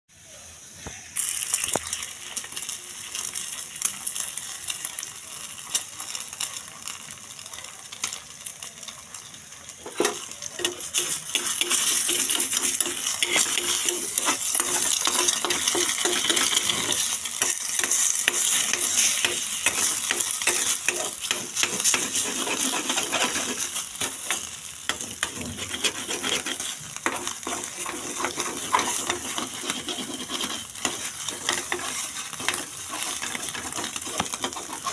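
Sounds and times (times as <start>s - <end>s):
eggs sizzling in hot oil: 0.1s - 34.9s
spoon scraping a metal pan: 9.8s - 34.9s.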